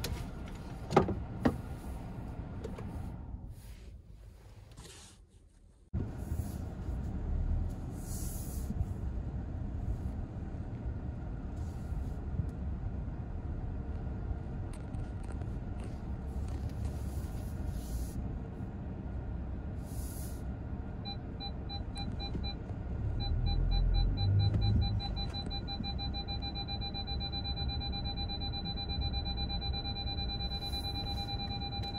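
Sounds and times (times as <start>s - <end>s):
car cabin rumble: 0.0s - 5.0s, 5.9s - 19.7s, 21.0s - 27.7s
parking sensor beeping: 21.0s - 31.9s.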